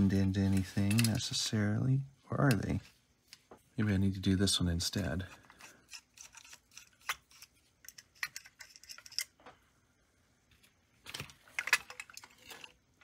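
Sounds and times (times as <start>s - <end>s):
metal parts clinking: 5.4s - 9.4s, 11.1s - 12.8s.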